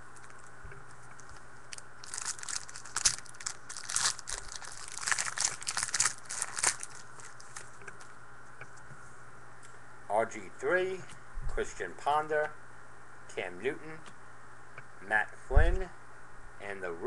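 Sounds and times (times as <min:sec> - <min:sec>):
wrapper crinkling and tearing: 0:01.2 - 0:07.8.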